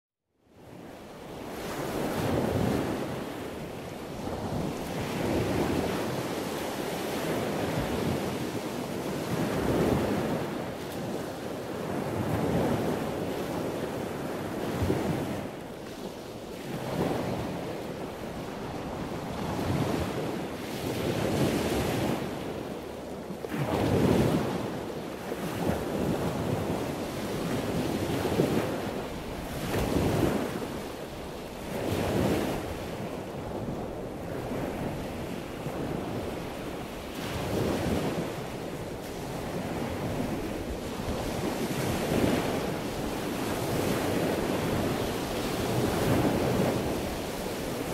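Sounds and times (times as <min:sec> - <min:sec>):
wind buffeting microphone: 0:00.6 - 0:47.9
ocean surf breaking: 0:25.4 - 0:47.9.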